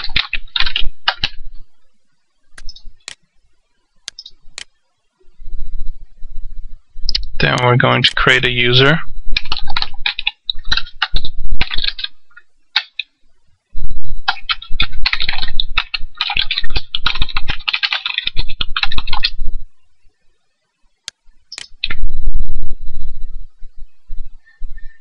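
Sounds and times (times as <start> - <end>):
typing on computer keyboard: 0.0 - 1.4, 9.4 - 12.2, 12.8 - 13.1, 14.3 - 19.4
sharp clicks: 2.6 - 3.2, 4.0 - 4.7, 12.8 - 13.1, 21.0 - 22.0.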